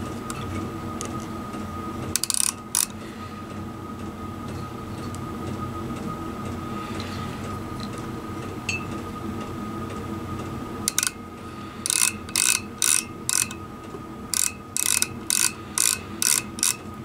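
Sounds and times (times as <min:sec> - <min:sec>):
steady low hum: 0:00.0 - 0:17.0
micrometer ratchet clicking: 0:02.2 - 0:03.0, 0:10.9 - 0:11.2, 0:11.8 - 0:13.6, 0:14.3 - 0:16.8.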